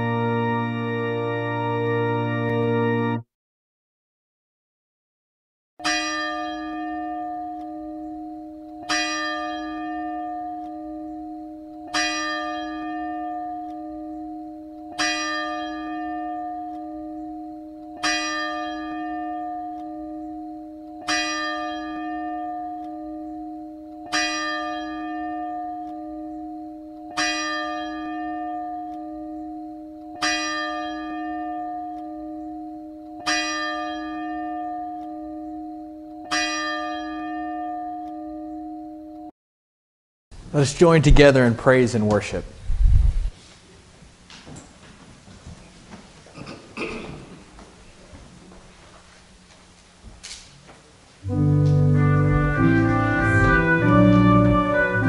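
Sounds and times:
church bell tolling: 5.8s - 39.3s, 51.2s - 55.0s.

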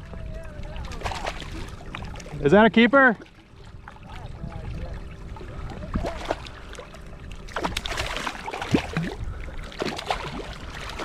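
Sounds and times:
water splashing and gurgling: 0.0s - 11.0s
fish thrashing at surface: 7.5s - 11.0s.

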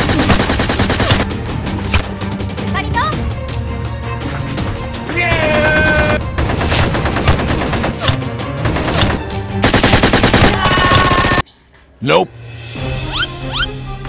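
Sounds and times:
machine gun sound effects: 0.0s - 1.2s, 8.8s - 11.4s
background music: 0.0s - 14.0s.

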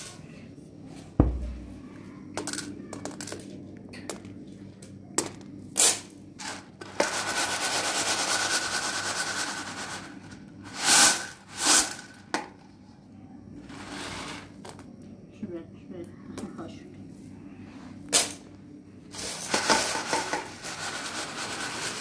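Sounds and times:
beans rattling on metal tray: 2.4s - 4.2s, 5.2s - 12.5s, 13.6s - 14.8s, 18.2s - 18.4s, 19.1s - 22.0s
beans sliding across tray: 13.6s - 14.8s, 19.1s - 22.0s.

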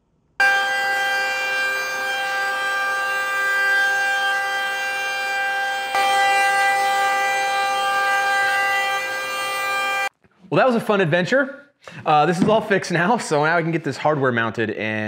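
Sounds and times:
router whining: 0.4s - 10.1s.

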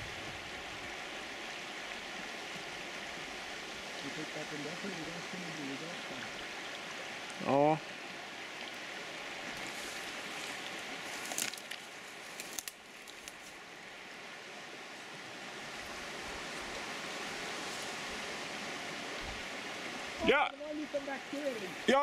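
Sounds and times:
forest stream flowing: 0.0s - 22.0s
clicks and rustles: 11.2s - 13.5s.

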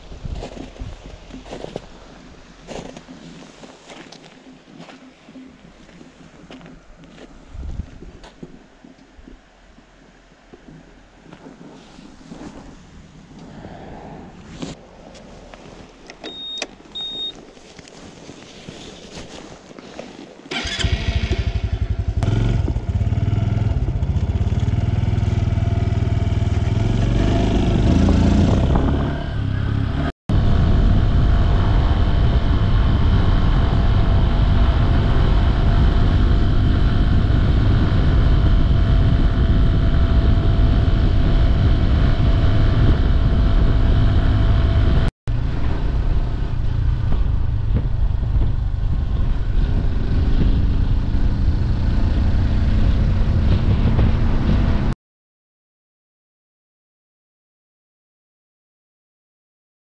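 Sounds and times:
short high beeps: 16.2s - 17.4s
motorcycle engine droning: 20.5s - 55.0s.

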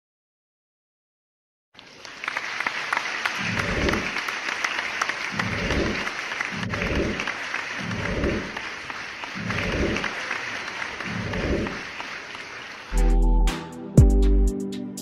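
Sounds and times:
crowd applauding: 1.8s - 13.3s.

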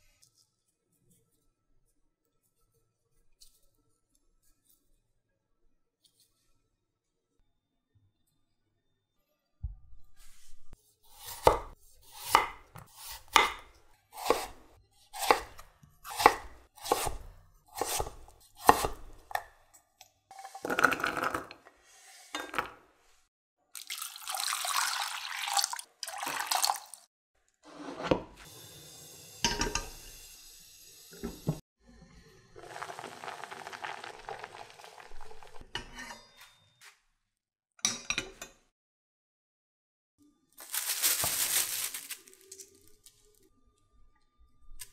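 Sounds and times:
knife chopping on wooden board: 11.2s - 14.6s, 15.2s - 19.4s
water pouring into pot: 23.8s - 27.1s, 32.4s - 35.6s.

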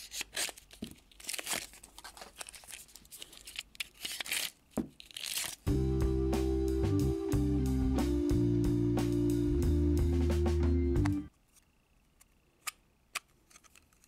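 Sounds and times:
plastic packaging crinkling and tearing: 0.0s - 5.7s
guitar music: 5.7s - 11.3s.

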